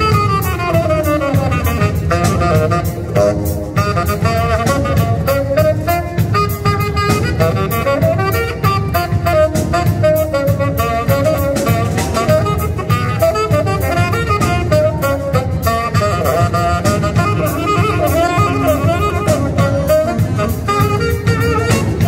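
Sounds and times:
drum kit beat: 0.0 - 22.0
saxophone melody: 0.0 - 22.0.

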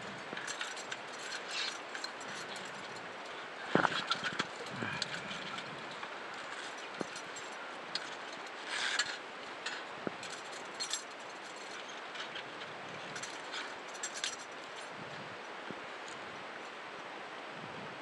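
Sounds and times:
steady muffled hiss: 0.0 - 18.0
scuba gear clinking: 0.1 - 14.9.

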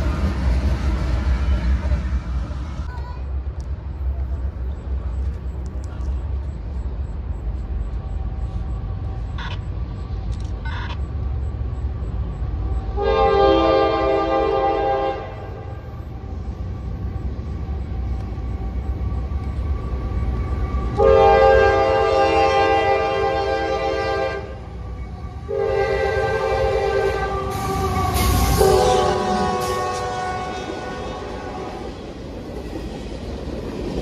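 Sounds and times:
locomotive horn blast: 12.9 - 15.8, 21.0 - 24.7, 25.4 - 31.9.

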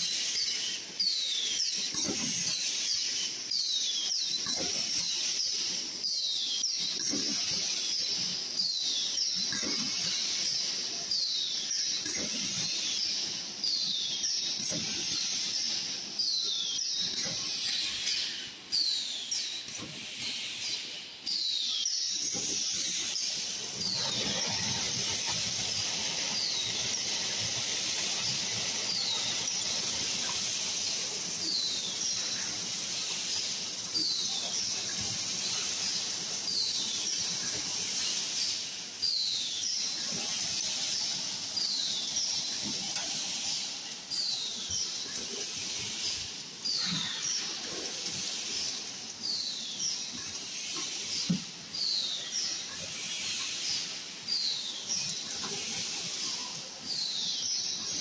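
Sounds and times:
machine hiss: 0.0 - 58.0.

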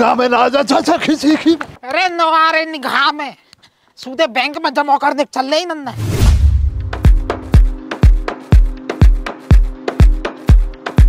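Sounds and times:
electronic dance music: 6.8 - 11.0.

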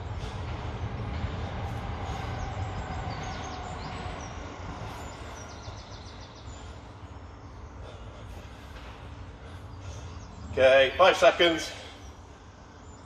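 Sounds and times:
low rumble: 0.0 - 10.6
bird chirps: 2.1 - 10.6.

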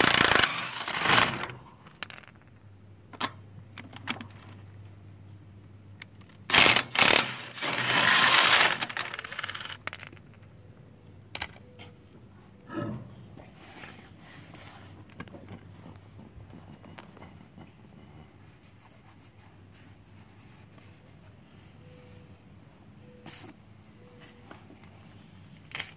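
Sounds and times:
impact wrench spinning: 0.0 - 1.6, 6.5 - 9.9.

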